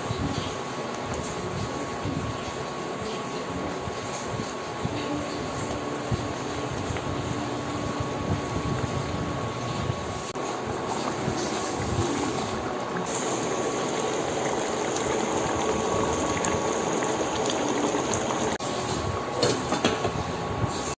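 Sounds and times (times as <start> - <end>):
curry bubbling in a pot: 5.4 - 18.6.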